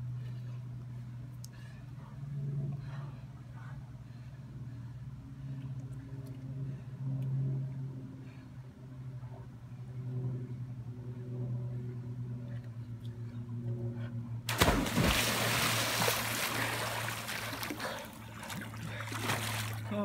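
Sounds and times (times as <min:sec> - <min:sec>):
steady low hum: 0:00.0 - 0:20.0
water splashing in a pool: 0:14.5 - 0:19.9.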